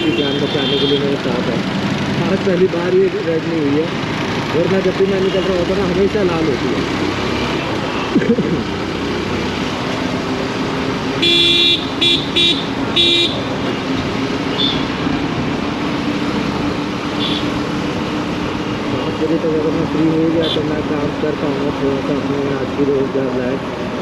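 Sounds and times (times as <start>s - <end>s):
vehicle horn honking: 0.0s - 1.2s, 11.2s - 13.5s, 14.5s - 14.9s, 17.2s - 17.5s
road traffic and engines: 0.0s - 24.0s.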